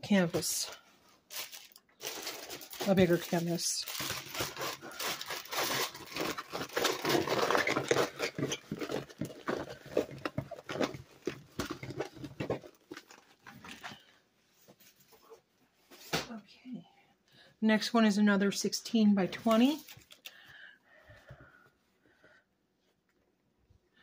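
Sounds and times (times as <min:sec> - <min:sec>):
plastic film crinkling: 0:00.4 - 0:14.0, 0:19.4 - 0:20.3.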